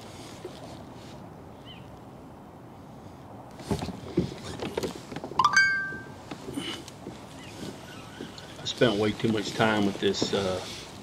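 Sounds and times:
bright metallic ring: 0:05.4 - 0:06.2.

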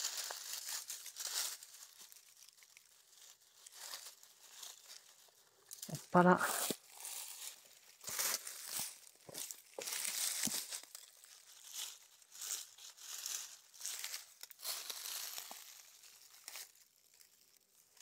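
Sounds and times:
dry leaves crackling and rustling: 0:00.0 - 0:18.0.

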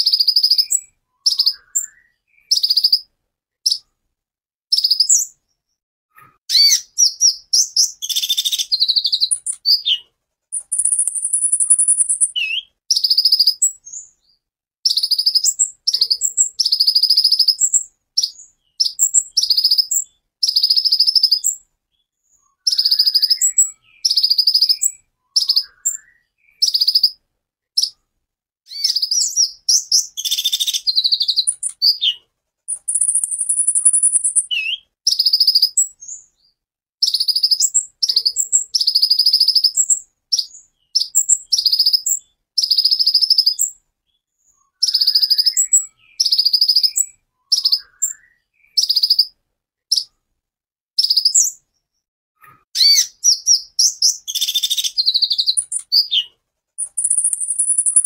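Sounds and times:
sunbird chattering song: 0:00.0 - 0:03.9, 0:04.7 - 0:05.4, 0:06.2 - 0:21.6, 0:22.4 - 0:27.2, 0:28.7 - 0:36.3, 0:37.0 - 0:43.8, 0:44.6 - 0:50.1, 0:51.0 - 0:51.6, 0:52.8 - 0:58.0
high buzzing bird trills: 0:06.5 - 0:09.9, 0:10.6 - 0:13.4, 0:56.8 - 0:58.0.

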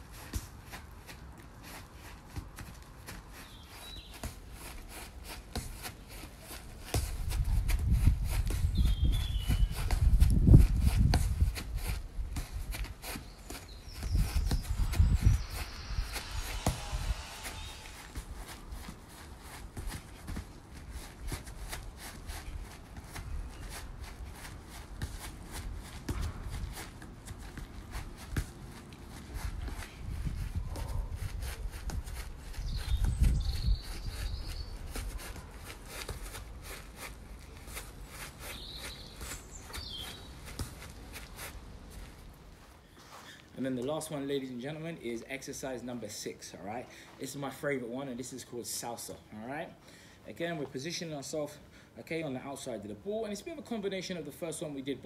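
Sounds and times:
small hops on turf: 0:00.0 - 0:55.0
football taps on artificial turf: 0:01.8 - 0:19.0, 0:19.6 - 0:21.8, 0:25.0 - 0:29.9.

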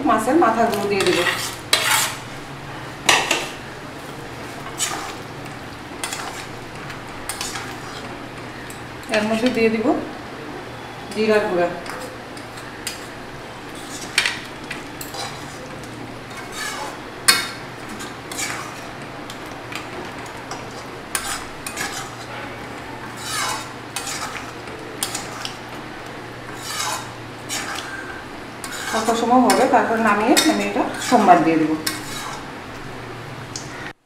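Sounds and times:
wooden spatula scraping metal pan: 0:00.7 - 0:02.3, 0:04.4 - 0:05.2, 0:06.0 - 0:08.2, 0:11.1 - 0:19.0, 0:20.5 - 0:25.6, 0:26.4 - 0:32.5.

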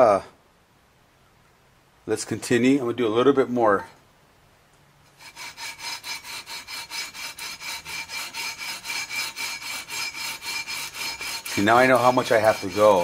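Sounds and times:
sandpaper rubbing on fret wire: 0:05.2 - 0:13.0.

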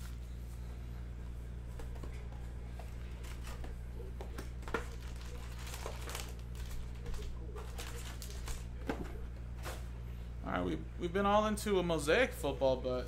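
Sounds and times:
low electrical hum: 0:00.0 - 0:13.0
cellophane crinkling: 0:04.7 - 0:08.7.

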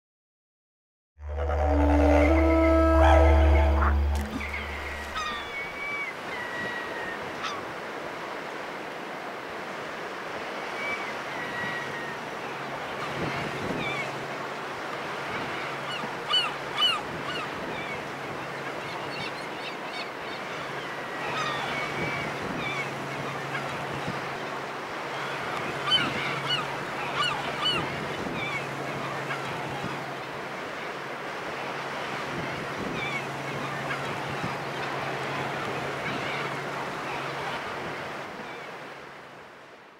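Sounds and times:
gulls calling: 0:01.2 - 0:07.7, 0:15.2 - 0:31.0, 0:32.1 - 0:38.9
sea washing: 0:01.2 - 0:39.6.

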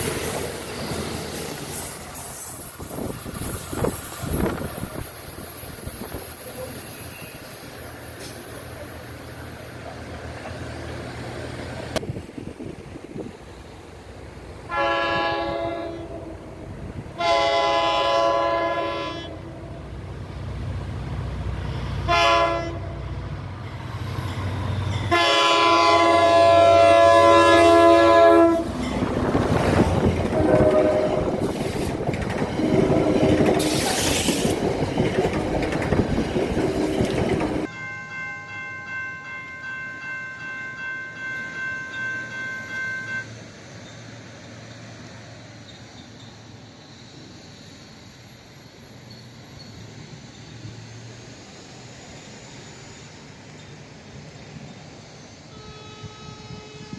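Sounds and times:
train rumbling past: 0:00.0 - 0:56.9
locomotive air horn blasts: 0:14.7 - 0:16.5, 0:17.2 - 0:19.8, 0:22.0 - 0:23.1, 0:25.1 - 0:28.8, 0:30.2 - 0:31.6, 0:55.5 - 0:56.9.

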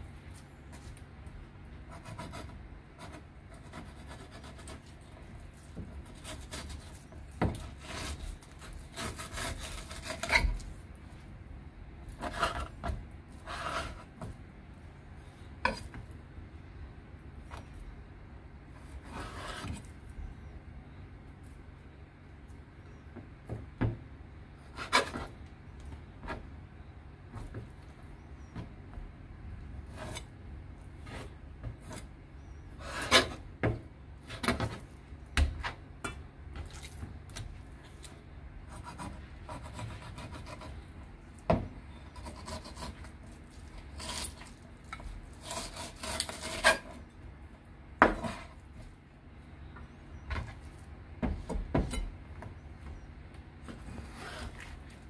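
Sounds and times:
knife scraping fish: 0:05.6 - 0:10.7, 0:42.1 - 0:47.0.

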